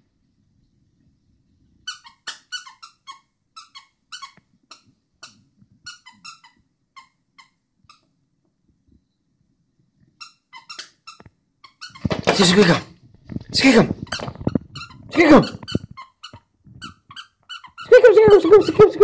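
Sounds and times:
squeaky toy squeaking: 1.8s - 8.1s, 10.2s - 12.8s, 14.0s - 19.0s.

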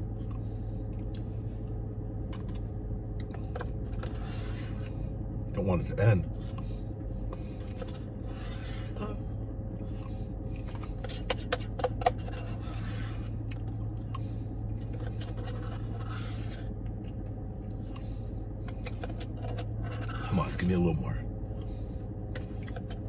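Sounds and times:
steady low hum: 0.0s - 23.0s
plastic spoon scraping paper cup: 3.9s - 4.9s, 7.5s - 9.0s, 10.6s - 13.4s, 14.8s - 16.7s, 18.7s - 20.6s.

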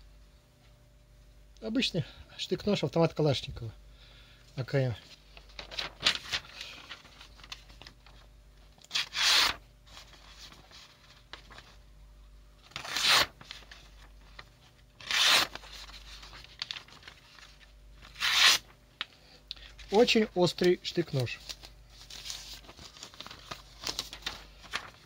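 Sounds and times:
blade slicing paper: 8.9s - 9.6s, 12.7s - 13.6s, 15.0s - 16.7s, 18.1s - 18.7s.

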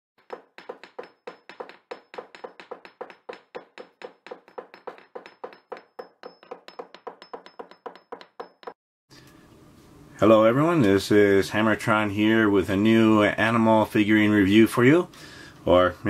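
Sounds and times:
rhythmic sharp knocks: 0.2s - 8.8s.

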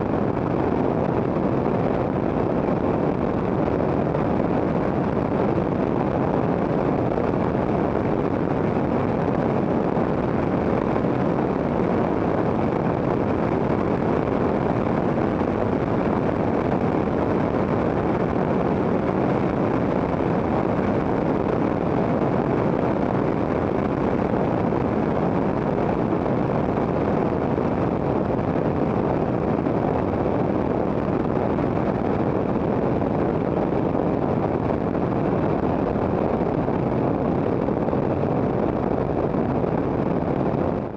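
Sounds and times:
wind on microphone: 0.0s - 40.9s.

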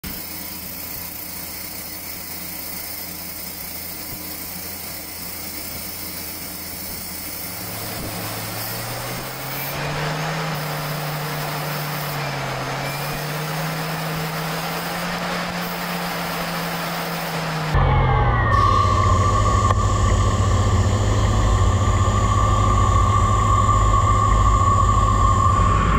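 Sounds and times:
hiss of metal cutting: 0.0s - 17.8s
lathe machine hum: 0.0s - 25.9s
humming tone rising in pitch: 2.1s - 25.9s.

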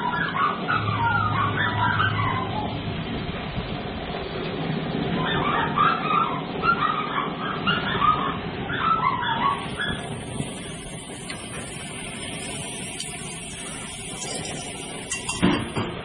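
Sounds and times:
thin high hiss: 9.5s - 15.9s
gas grill sizzling: 9.5s - 16.0s.

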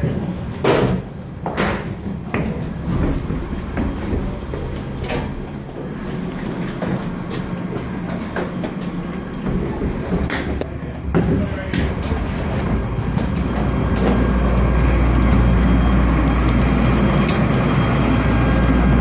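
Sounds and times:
sharp knocks and clanks: 0.0s - 5.5s
steady low hum: 0.0s - 19.0s.

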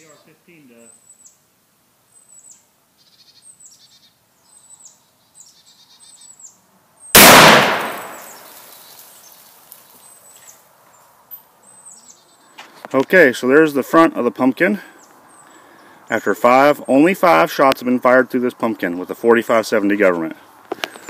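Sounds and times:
faint birds chirping: 0.0s - 7.2s, 7.8s - 21.0s
rifle shot: 7.2s - 8.7s.

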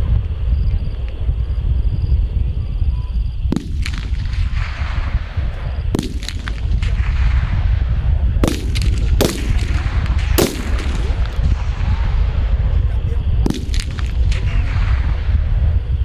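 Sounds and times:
steady low rumble: 0.0s - 16.0s
rifle shots: 3.5s - 12.6s, 13.4s - 15.5s.

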